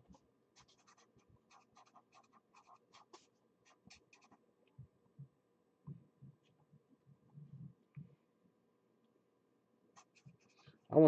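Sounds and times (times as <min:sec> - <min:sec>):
pen scratching on paper: 0:00.6 - 0:04.4, 0:10.0 - 0:10.6.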